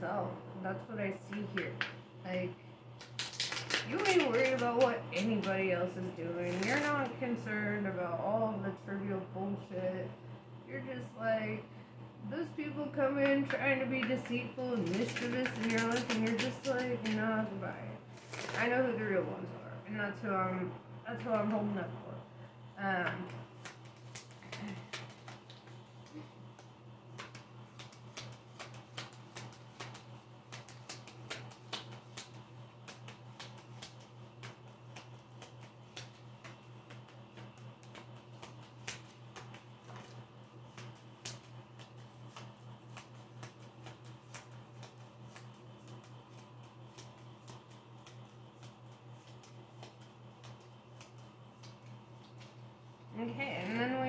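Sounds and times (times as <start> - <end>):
steady low hum: 0.0 - 54.0
cards being shuffled: 1.3 - 5.7, 6.3 - 7.2, 13.2 - 18.8, 23.0 - 54.0.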